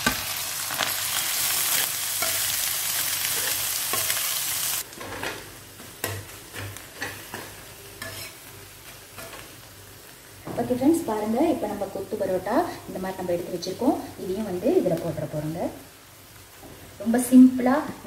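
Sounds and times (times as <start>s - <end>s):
vegetables and egg sizzling in oil: 0.0s - 18.0s
metal spatula scraping pan: 5.0s - 8.5s.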